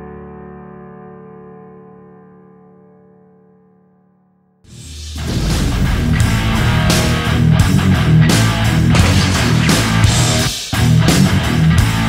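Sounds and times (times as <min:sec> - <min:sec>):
rock music with distorted guitar: 0:04.7 - 0:12.0.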